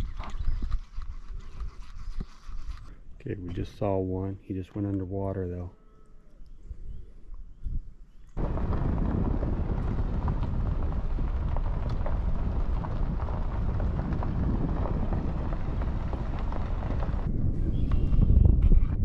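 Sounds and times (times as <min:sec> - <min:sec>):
wind buffeting microphone: 0:06.6 - 0:19.0.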